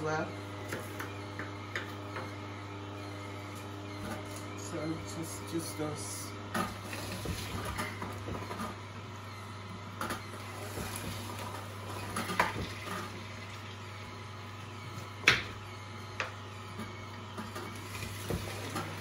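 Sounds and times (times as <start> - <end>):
juicer humming: 0.0 - 19.0.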